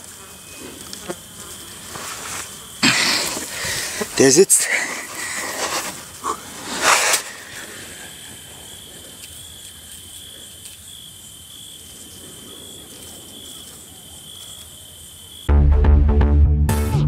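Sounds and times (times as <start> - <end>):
crickets trilling: 0.0 - 15.5
brief rustling: 4.9 - 8.0.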